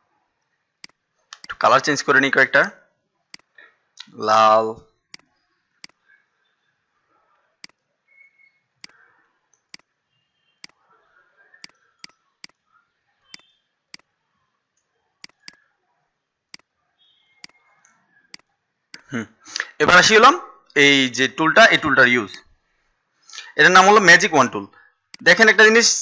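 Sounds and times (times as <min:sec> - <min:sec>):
faint computer mouse clicks: 0:14.8 - 0:15.6.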